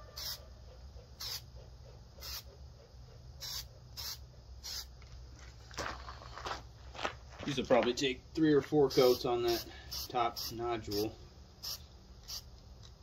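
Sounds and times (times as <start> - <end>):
spray paint can hissing: 0.2 - 0.4, 1.2 - 1.5, 2.2 - 2.5, 3.4 - 4.9, 8.9 - 12.5.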